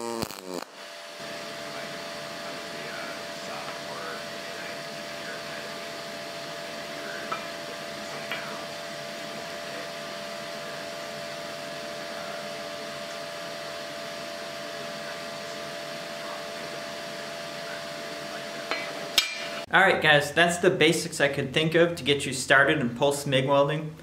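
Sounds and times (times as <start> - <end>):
machine whir: 0.0 - 19.7.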